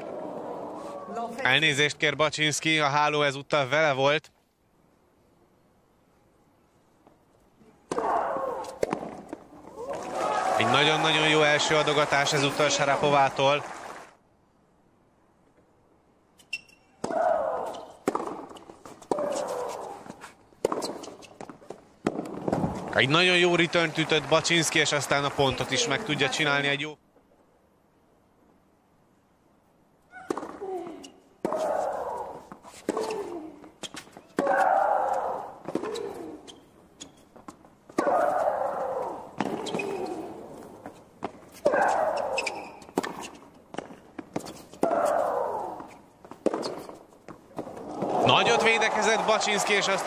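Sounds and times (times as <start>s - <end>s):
racket striking tennis ball: 7.9s - 9.4s, 17.0s - 22.8s, 30.2s - 30.7s, 31.4s - 33.4s, 37.9s - 40.4s, 41.2s - 47.0s.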